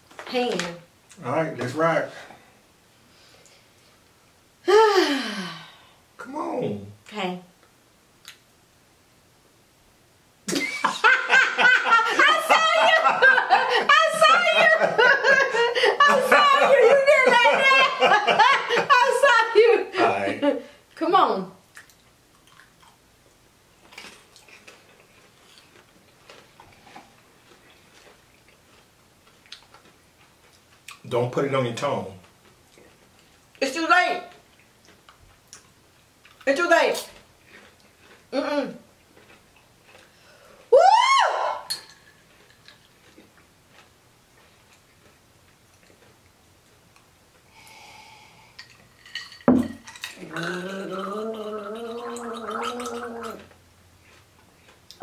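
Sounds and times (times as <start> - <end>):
person chewing popcorn: 21.7 - 31.1, 34.3 - 36.4, 37.2 - 40.7, 42.1 - 47.5, 51.8 - 55.0
woman gargling: 50.2 - 53.5.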